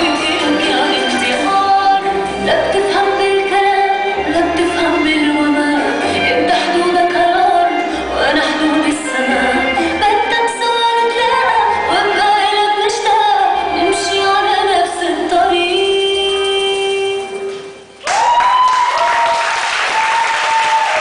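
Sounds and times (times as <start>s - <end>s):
person singing melody: 0.0s - 17.8s
audience applause: 18.0s - 21.0s.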